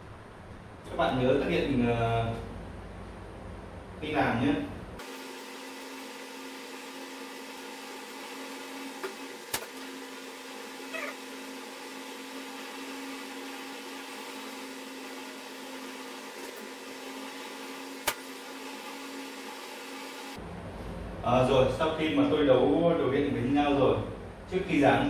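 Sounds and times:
steady hum with tones: 0:00.0 - 0:05.1, 0:19.7 - 0:25.0.

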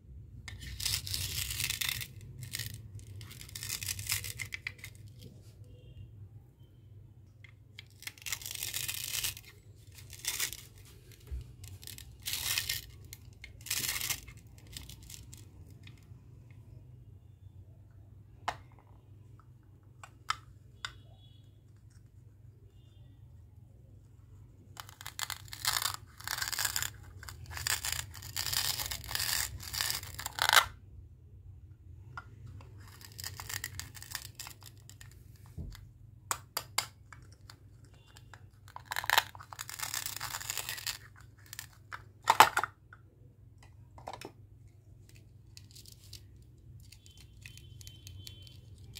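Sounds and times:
plastic toy pieces pulled apart: 0:00.5 - 0:05.0, 0:07.8 - 0:16.0, 0:24.8 - 0:30.8, 0:32.8 - 0:35.7, 0:38.1 - 0:42.8.

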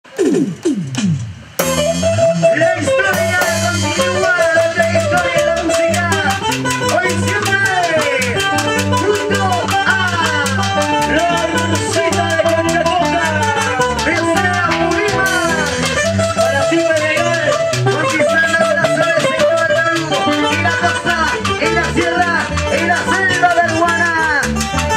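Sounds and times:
drum kit with cymbals: 0:00.0 - 0:24.9
electric guitar melody: 0:01.3 - 0:24.9.

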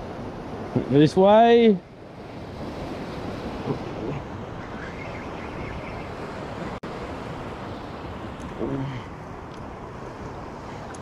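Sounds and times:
surf washing over rocks: 0:00.0 - 0:05.0.

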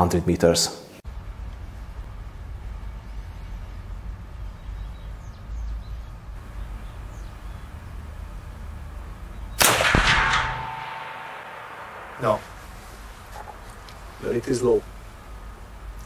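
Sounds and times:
low steady hum: 0:00.9 - 0:16.0
rifle shot echoing: 0:09.6 - 0:13.8.

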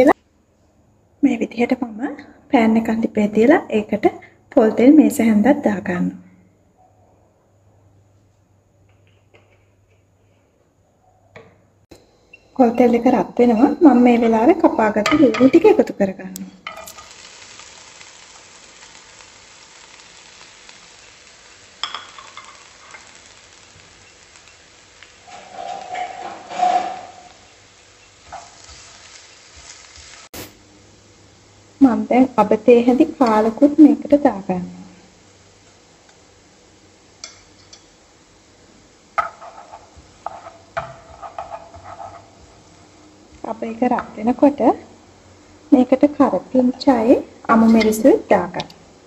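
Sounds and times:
onions sizzling in a frying pan: 0:12.4 - 0:49.0
spatula knocking on frying pan: 0:39.2 - 0:39.6.

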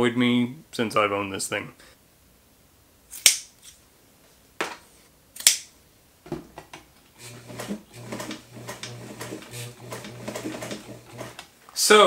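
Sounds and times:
sewing machine motor humming: 0:07.2 - 0:11.5.

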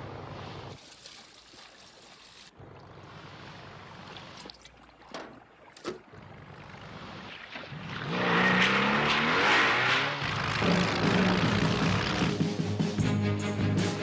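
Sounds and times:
speedboat engine revving: 0:06.2 - 0:12.4.

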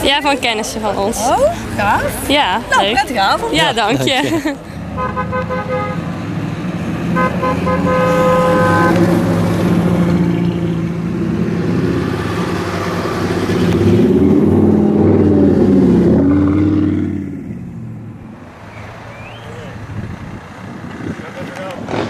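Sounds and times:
cars driving past: 0:00.0 - 0:22.0
engine revving: 0:04.8 - 0:22.0
car horn: 0:04.9 - 0:06.2, 0:07.1 - 0:10.9.

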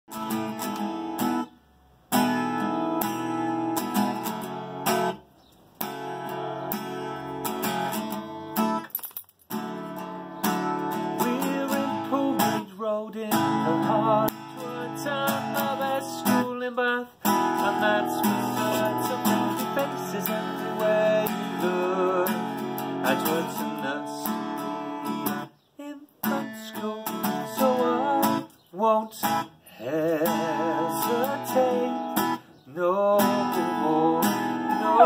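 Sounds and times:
acoustic guitar strumming chords: 0:00.1 - 0:08.9, 0:09.5 - 0:25.6, 0:26.2 - 0:35.0.

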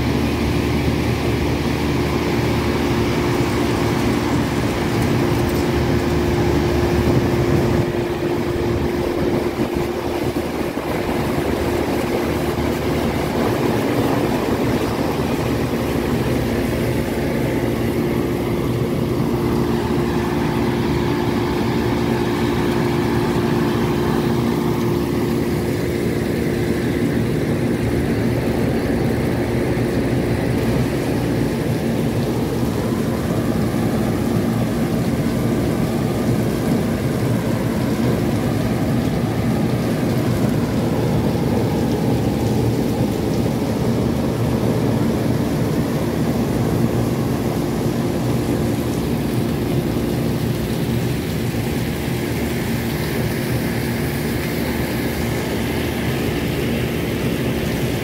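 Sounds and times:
air conditioning unit drone: 0:00.0 - 0:58.0.

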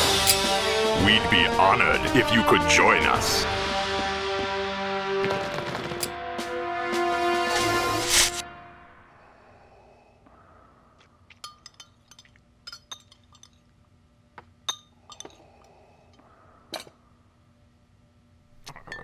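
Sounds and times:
loud music hit: 0:00.0 - 0:05.2
faint steady hum: 0:08.5 - 0:19.0
glasses and cutlery clinking: 0:11.4 - 0:13.6, 0:14.7 - 0:15.4.

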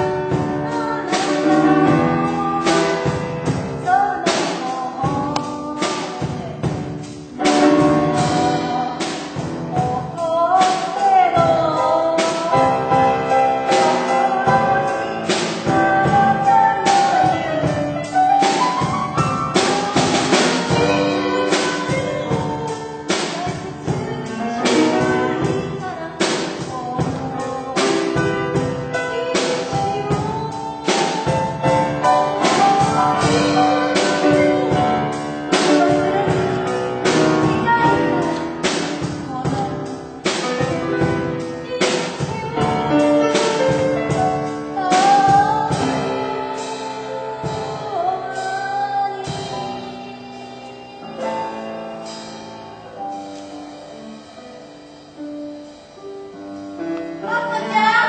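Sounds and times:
person singing a melody: 0:00.0 - 0:52.3, 0:57.2 - 0:58.0
steady drum beat: 0:00.0 - 0:53.5
instrumental accompaniment: 0:00.0 - 0:58.0.

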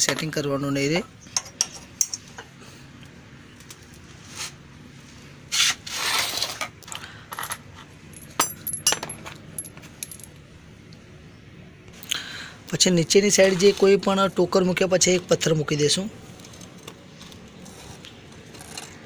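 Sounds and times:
metal tools clinking: 0:06.9 - 0:10.4.

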